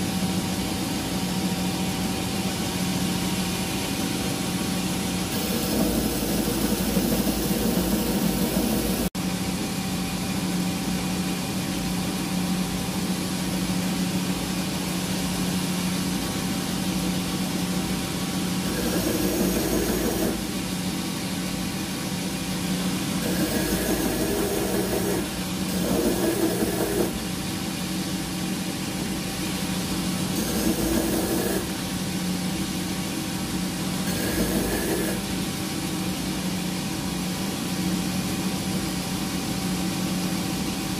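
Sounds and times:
bench grinder motor humming: 5.3 - 9.1.

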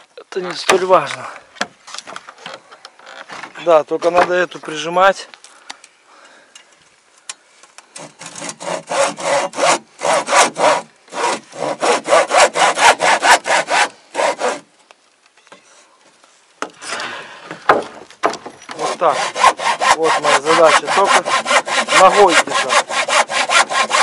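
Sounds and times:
hand saw cutting wood: 8.0 - 14.7, 17.7 - 24.0.

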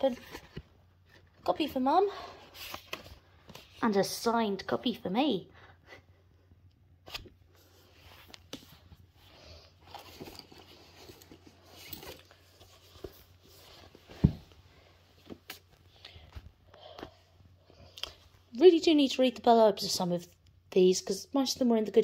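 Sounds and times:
books rustling and scraping: 0.0 - 4.0, 7.1 - 17.2.

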